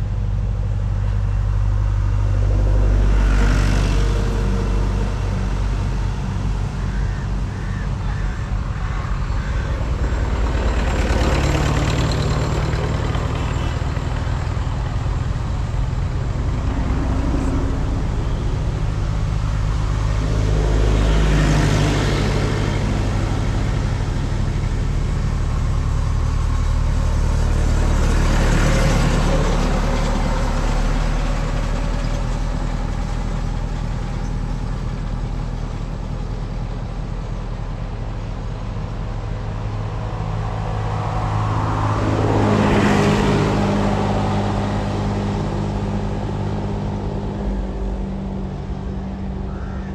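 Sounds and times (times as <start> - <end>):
tractors driving past: 0.0 - 49.9.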